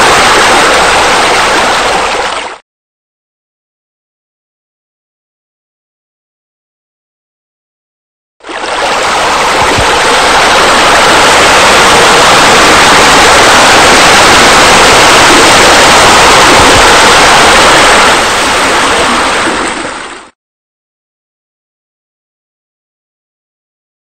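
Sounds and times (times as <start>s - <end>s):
falling water rushing: 0.0s - 2.6s, 8.4s - 20.3s.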